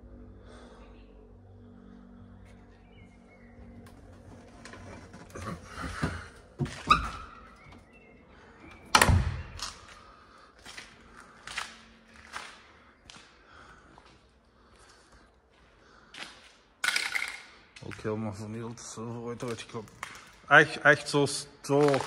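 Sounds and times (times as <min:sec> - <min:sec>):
knocks and thuds of climbing down: 0:04.1 - 0:07.8
gritty footsteps on concrete: 0:09.6 - 0:18.6.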